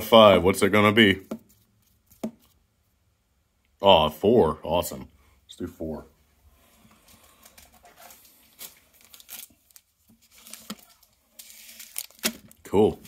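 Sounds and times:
foil wrappers crinkling: 7.2 - 12.6.

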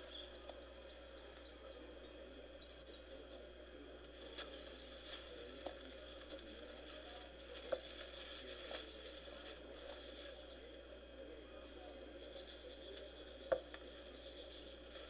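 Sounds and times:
dry twigs crackling: 4.1 - 10.7.

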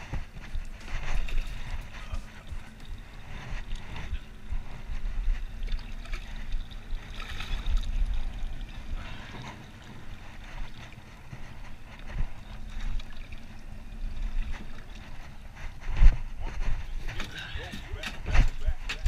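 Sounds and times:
water lapping against boat hull: 0.0 - 19.0
wind on microphone: 0.0 - 19.0.

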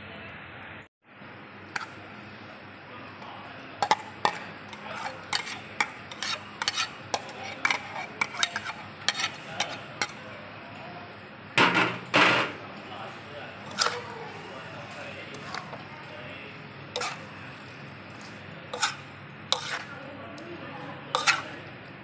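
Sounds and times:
clattering stirring in wok: 3.8 - 10.2, 13.6 - 14.2, 14.9 - 15.9, 16.9 - 20.0, 21.1 - 21.6
spatula scraping metal wok: 3.8 - 10.2, 13.6 - 14.2, 15.3 - 15.8, 16.9 - 17.5, 18.2 - 20.0, 21.1 - 21.6.

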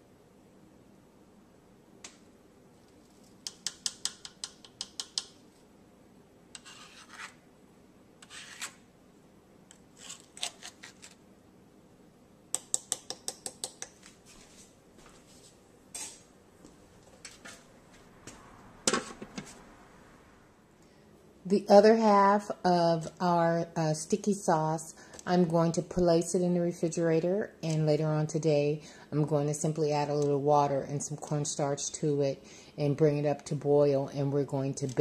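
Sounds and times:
utensil clicking against a dish: 3.4 - 5.4, 12.5 - 14.0
utensil scraping a dish: 6.6 - 7.4, 8.2 - 8.8.

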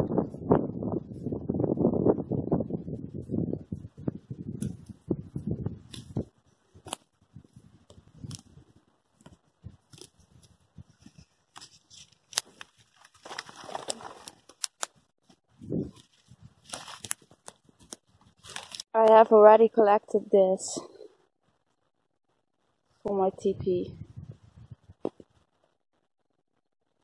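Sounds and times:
footsteps rustling through dry grass: 3.1 - 14.5, 15.2 - 18.9
twigs snapping: 5.9 - 6.2, 6.8 - 7.1, 7.9 - 8.5, 9.2 - 15.0, 16.0 - 18.9.

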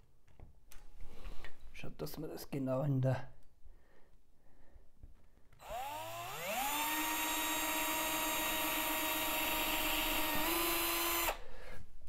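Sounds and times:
cordless drill motor whine: 5.6 - 11.4.

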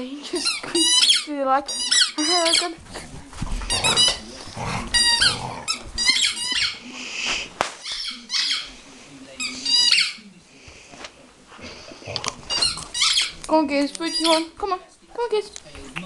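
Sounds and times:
rubber dog toy squeaking: 0.4 - 2.9, 3.7 - 4.2, 4.9 - 6.8, 7.8 - 8.7, 9.4 - 10.2, 12.4 - 13.4, 14.0 - 14.6.

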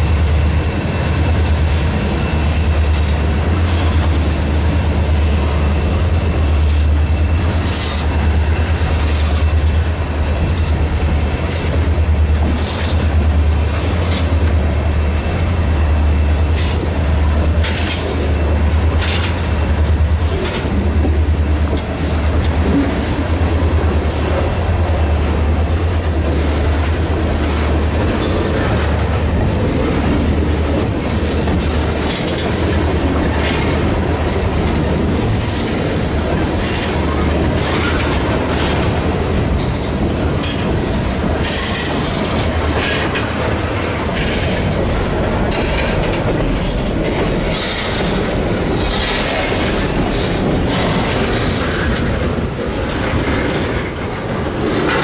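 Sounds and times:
train wheels rumbling: 0.0 - 55.0
wheels clacking over rail joints: 16.3 - 55.0.

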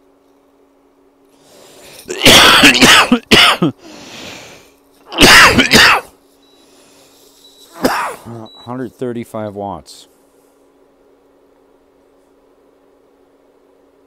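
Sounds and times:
person coughing: 2.1 - 3.8, 5.1 - 6.2, 7.8 - 8.4.

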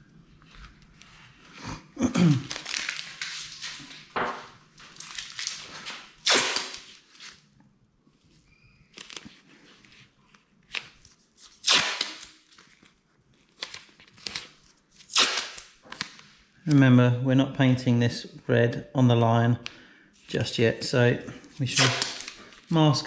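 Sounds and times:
masking tape ripping: 2.2 - 3.7, 5.0 - 7.3, 11.5 - 12.5, 13.6 - 16.8, 21.7 - 22.8
paper rustling: 2.3 - 6.1, 8.8 - 16.8, 21.4 - 23.0.

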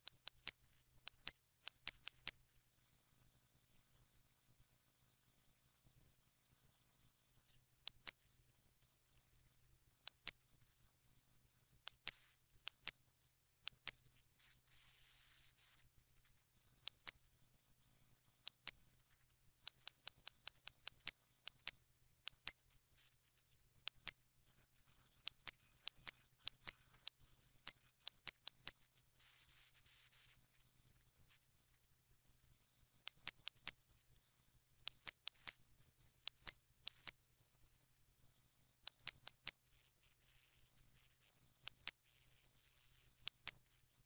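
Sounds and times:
computer mouse clicking: 0.0 - 2.4, 7.4 - 8.4, 9.1 - 10.7, 11.8 - 13.0, 13.6 - 17.2, 18.4 - 24.2, 25.0 - 31.8, 33.0 - 34.2, 34.8 - 35.6, 36.2 - 37.2, 38.8 - 44.0
faint low hum: 0.0 - 44.0
soft hissing rustle: 14.2 - 16.4, 29.0 - 31.9.

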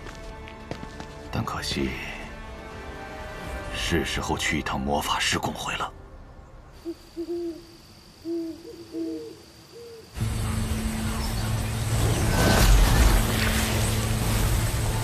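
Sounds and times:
owl hooting: 6.8 - 10.2
magic energy hum with hiss: 10.2 - 15.0.

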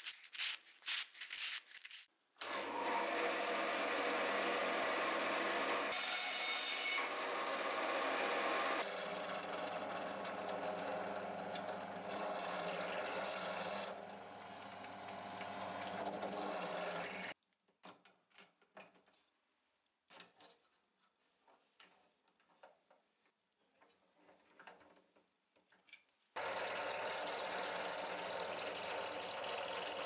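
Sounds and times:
drill press boring into wood: 7.0 - 17.3.

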